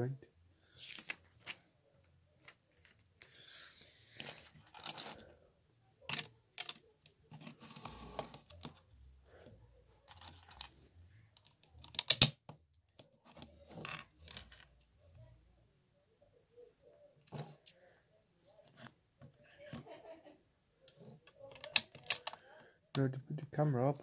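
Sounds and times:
plastic bricks clicking and rustling: 0:04.2 - 0:05.3, 0:06.1 - 0:07.6, 0:10.0 - 0:10.8, 0:11.4 - 0:12.4, 0:21.4 - 0:22.4
sharp plastic snaps: 0:11.8 - 0:12.6, 0:21.5 - 0:22.4.

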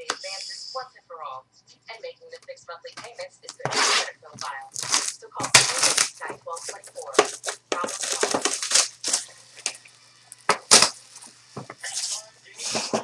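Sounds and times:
plastic packaging crinkling and tearing: 0:03.6 - 0:12.9.

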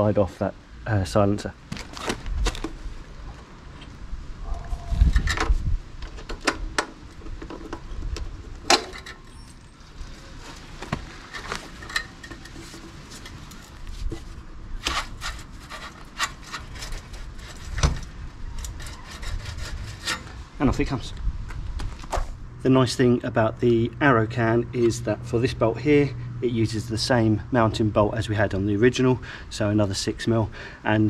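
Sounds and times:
metal scraping on metal: 0:14.8 - 0:20.6.

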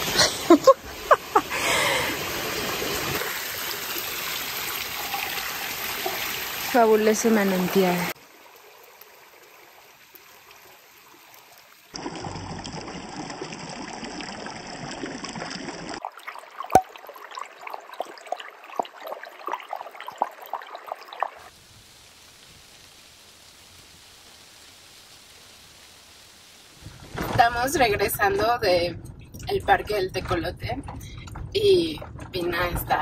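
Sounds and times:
stream trickling over rocks: 0:01.1 - 0:26.8.

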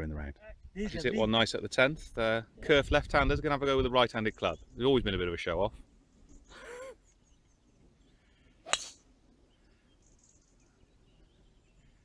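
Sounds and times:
golf club striking ball: 0:08.7 - 0:09.0.

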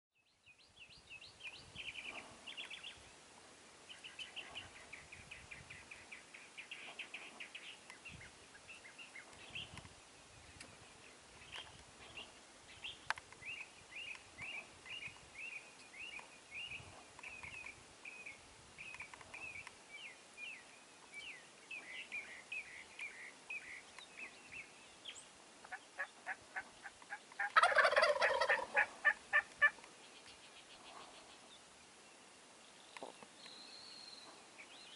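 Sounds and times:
chirping bird calls: 0:10.6 - 0:31.6
turkey gobbling: 0:25.6 - 0:29.8.

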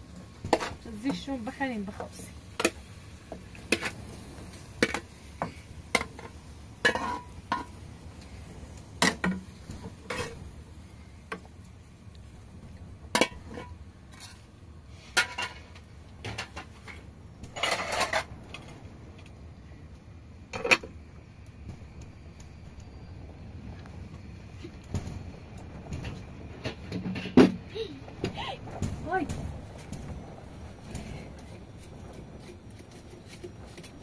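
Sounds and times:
metal pots clanking: 0:04.8 - 0:07.8, 0:15.1 - 0:18.3.

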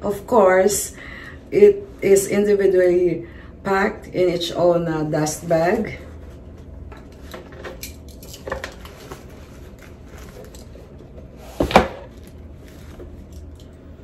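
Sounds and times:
bag and box rustling: 0:08.7 - 0:13.3.

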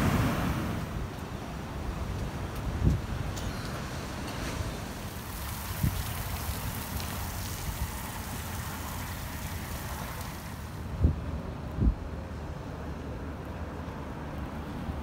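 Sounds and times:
wind buffeting microphone: 0:00.0 - 0:09.2.

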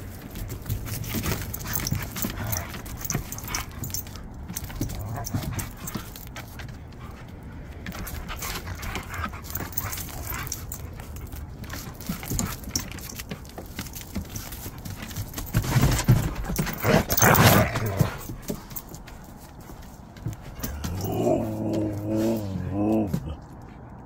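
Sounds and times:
paws scuffling on wooden boards: 0:00.0 - 0:24.0
dogs yipping and whimpering: 0:01.1 - 0:06.3, 0:08.0 - 0:18.9, 0:20.5 - 0:22.5.

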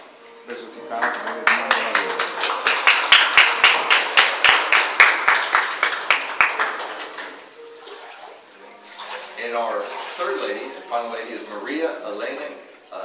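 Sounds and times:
fainter applause: 0:00.8 - 0:07.5
hands clapping close by: 0:00.9 - 0:07.4.

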